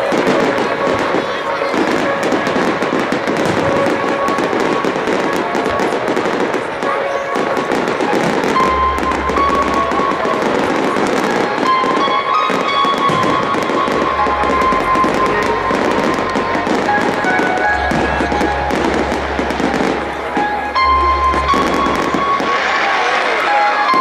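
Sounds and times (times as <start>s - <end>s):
fireworks bangs and crackles: 0.0s - 24.0s
music playing: 0.0s - 24.0s.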